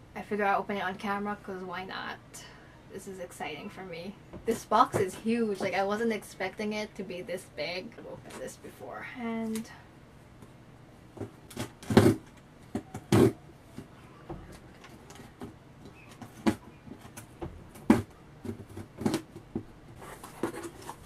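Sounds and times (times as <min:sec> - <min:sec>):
scissors cutting cardboard: 0:11.5 - 0:13.4, 0:16.2 - 0:21.0.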